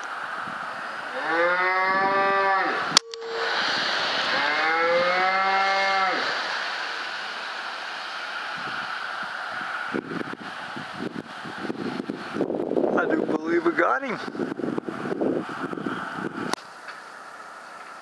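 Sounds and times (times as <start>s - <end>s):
cow mooing: 1.1s - 3.5s, 4.3s - 6.2s.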